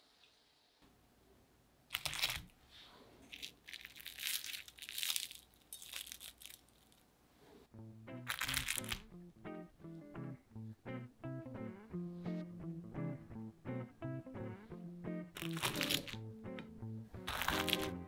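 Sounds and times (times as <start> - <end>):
fried crust crunching: 1.9 - 2.5, 3.3 - 7.0, 8.3 - 9.0, 15.4 - 16.2, 17.2 - 18.0
plucked guitar music: 7.7 - 18.0.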